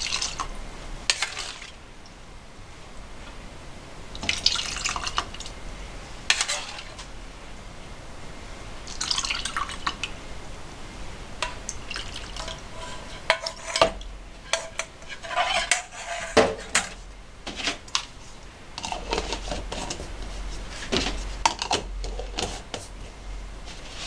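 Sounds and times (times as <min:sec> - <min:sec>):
plastic ladle scraping a bowl: 0:06.3 - 0:07.1, 0:12.3 - 0:17.8, 0:18.8 - 0:22.9
soup pouring: 0:08.9 - 0:10.0, 0:11.4 - 0:13.8.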